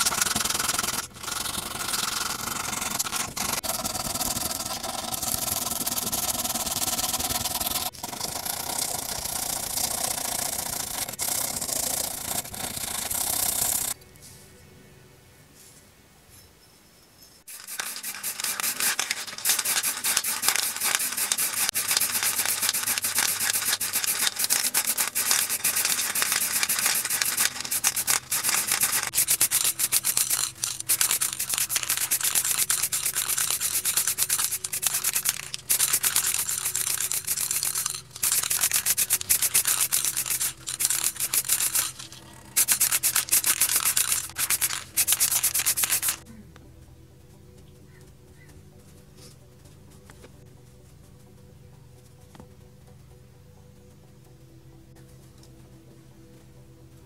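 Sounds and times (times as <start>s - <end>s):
spray paint hissing: 0.0s - 14.0s, 17.5s - 46.3s.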